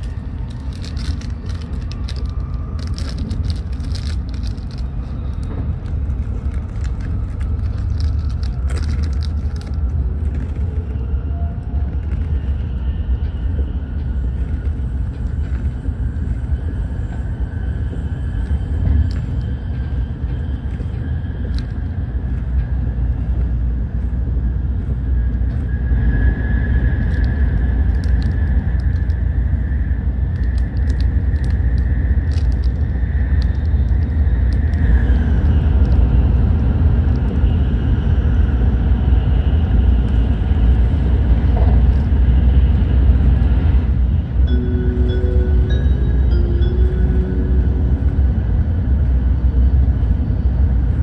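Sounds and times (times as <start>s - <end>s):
train interior rumble: 0.0s - 51.0s
faint high steady tone: 44.4s - 50.4s.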